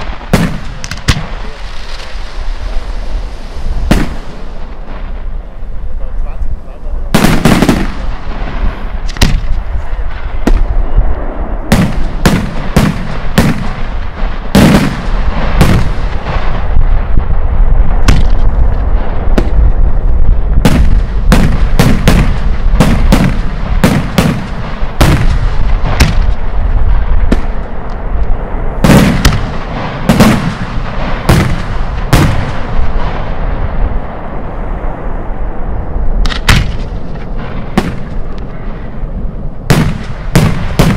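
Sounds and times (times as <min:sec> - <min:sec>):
firework shells bursting: 0:00.0 - 0:03.1
low rumble: 0:00.0 - 0:40.9.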